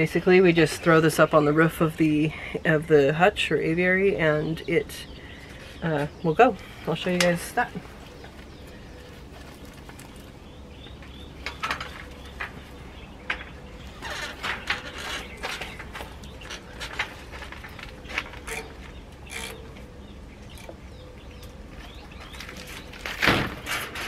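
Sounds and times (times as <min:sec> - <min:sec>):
low steady hum: 0:00.0 - 0:24.0
rustling and scraping handling noises: 0:06.6 - 0:20.8, 0:21.6 - 0:24.0.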